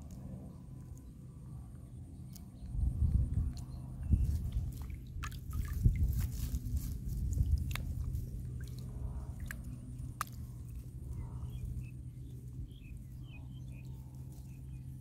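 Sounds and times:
steady low rumble: 0.0 - 15.0
leafy twigs rustling: 4.2 - 8.5.

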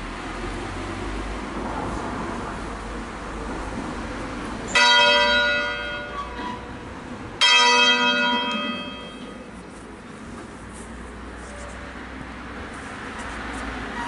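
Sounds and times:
church bell ringing: 4.7 - 6.6, 7.4 - 9.5.

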